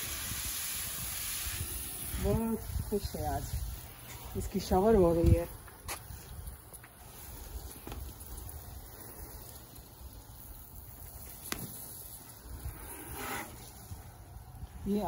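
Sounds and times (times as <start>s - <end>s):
hose nozzle spray hissing: 0.0s - 6.4s
wind rumble on microphone: 0.0s - 6.7s, 12.4s - 15.0s
water pattering on ground: 5.2s - 8.8s.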